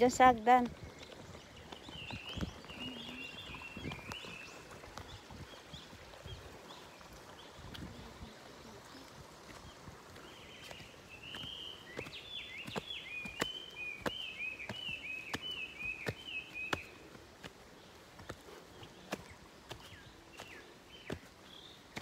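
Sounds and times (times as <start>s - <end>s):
footsteps on trail steps: 0.0s - 22.0s
bird singing whistled notes: 11.2s - 17.0s.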